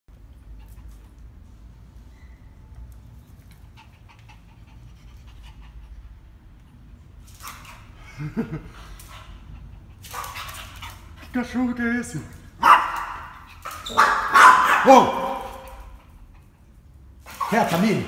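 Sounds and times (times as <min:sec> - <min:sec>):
dog panting: 0:03.2 - 0:11.6.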